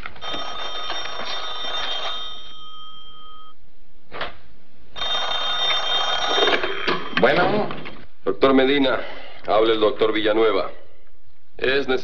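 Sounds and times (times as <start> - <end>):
telephone bell ringing: 0.2 - 3.6, 5.0 - 7.6.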